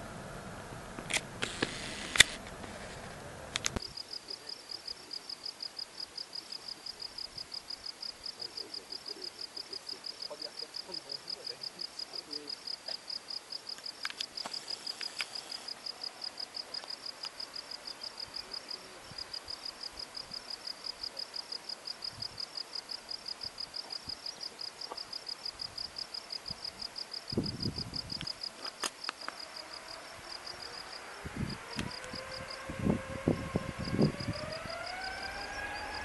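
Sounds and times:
jet engines spooling up: 0.0 - 3.8, 29.1 - 36.0
low rumbles: 0.0 - 3.9, 29.6 - 36.0
insect chirping: 1.2 - 36.0.

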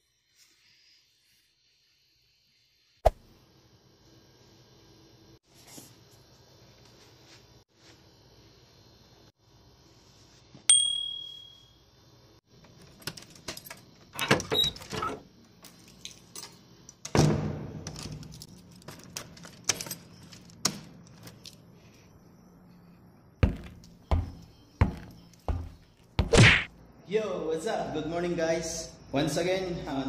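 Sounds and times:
metallic ping: 10.7 - 11.8
keys jangling: 17.9 - 21.6.

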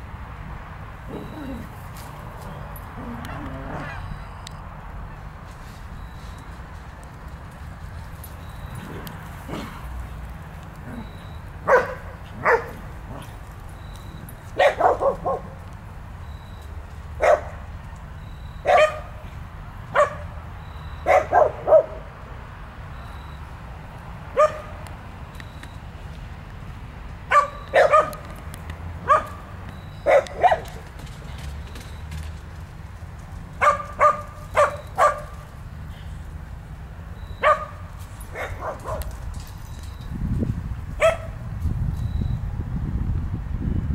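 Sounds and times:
dogs barking: 10.9 - 13.4, 14.5 - 15.6, 17.2 - 17.6, 18.6 - 19.2, 19.9 - 20.4, 21.0 - 22.1, 24.3 - 24.8, 27.3 - 28.2, 29.0 - 30.8, 33.6 - 35.5, 37.4 - 39.2, 41.0 - 41.4.

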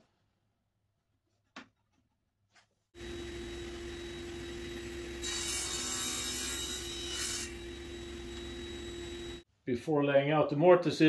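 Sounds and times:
table saw cutting wood: 3.0 - 9.4.

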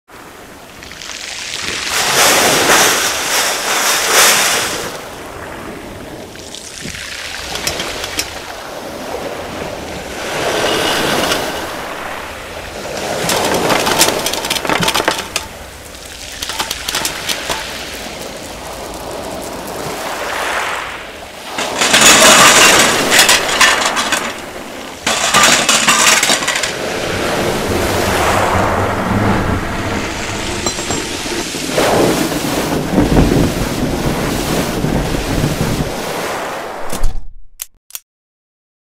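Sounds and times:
household items clattering across floor: 13.1 - 15.6, 21.6 - 26.8, 30.6 - 31.4.

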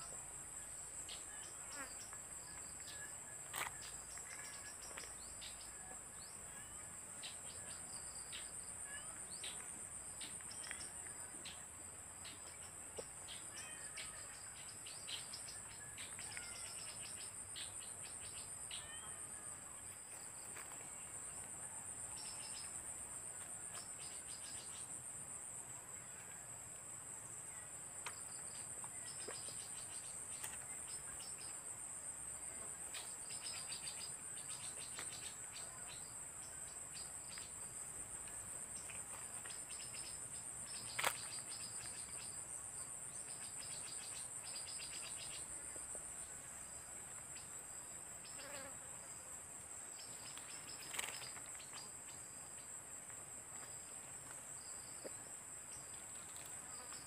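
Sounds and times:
crickets trilling: 0.0 - 57.0.

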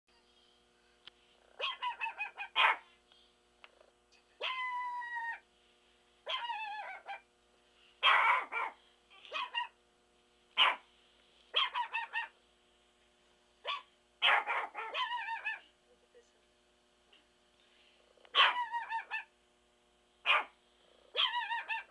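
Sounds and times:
dog whining: 1.6 - 2.7, 4.4 - 5.4, 6.3 - 7.2, 13.7 - 15.7, 18.3 - 19.3, 21.1 - 21.9
small dog yipping: 1.6 - 2.8, 4.4 - 5.4, 6.3 - 7.2, 8.0 - 9.8, 10.6 - 10.8, 11.6 - 12.4, 13.6 - 15.7, 18.3 - 19.3, 20.3 - 20.5, 21.1 - 21.9.

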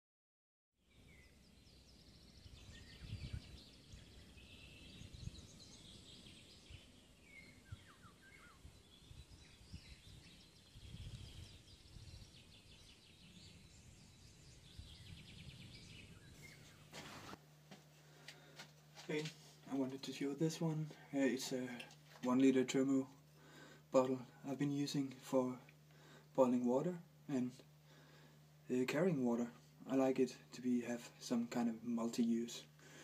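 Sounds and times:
birds chirping and trilling: 0.8 - 17.4.

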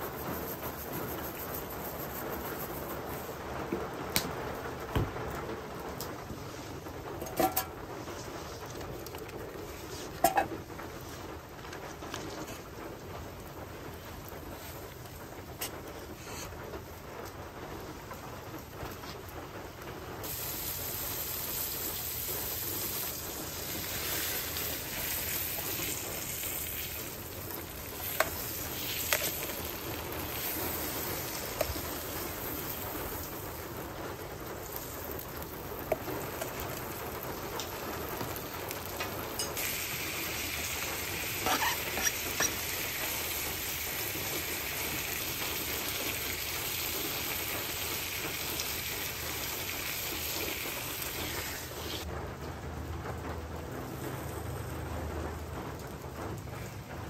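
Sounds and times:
steak sizzling in a skillet: 20.2 - 33.8, 34.5 - 52.0.

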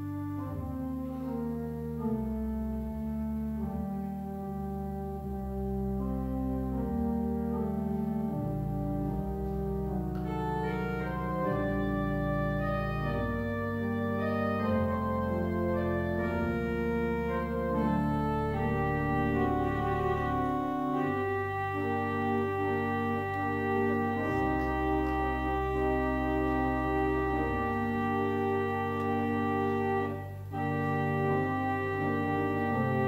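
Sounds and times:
church organ chords: 0.0 - 33.0.

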